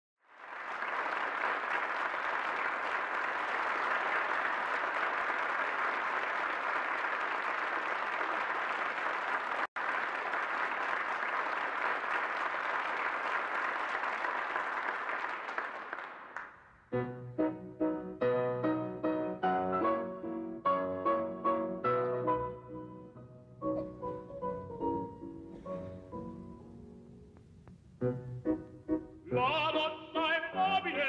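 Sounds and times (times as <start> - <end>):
audience applauding: 0.2 - 16.6.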